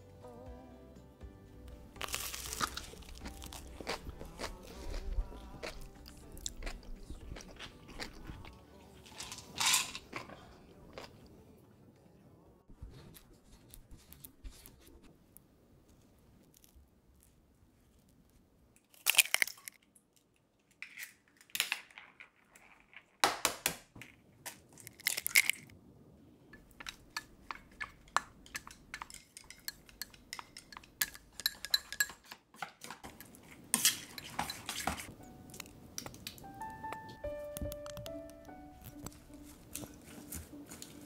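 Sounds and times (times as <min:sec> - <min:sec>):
utensils clinking on steel bowl: 0:09.1 - 0:10.2, 0:26.6 - 0:35.7.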